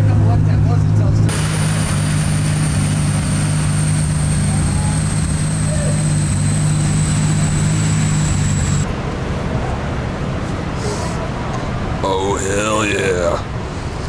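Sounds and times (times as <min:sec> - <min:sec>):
loud mechanical hum: 0:00.1 - 0:09.3
faint high whine: 0:01.3 - 0:08.9.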